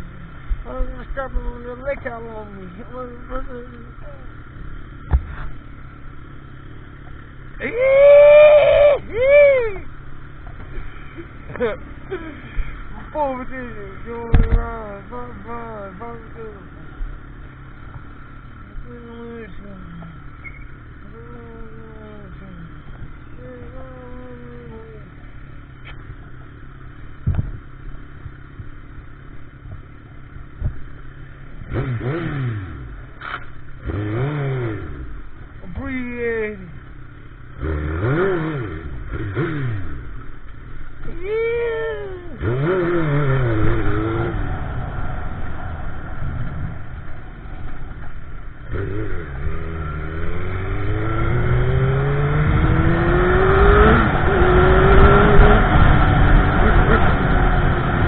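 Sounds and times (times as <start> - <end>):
motorcycle engine revving: 0.0 - 58.0
sharp thumps: 5.0 - 5.7, 14.2 - 14.8, 27.2 - 27.7
riding noise rush: 40.2 - 58.0
wind rumble: 43.0 - 58.0.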